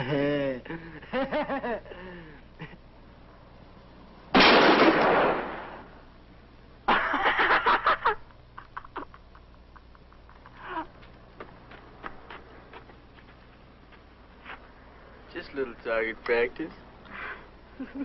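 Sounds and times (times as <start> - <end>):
handgun shot: 4.4 - 5.8
sharp clattering cracks: 4.4 - 5.9.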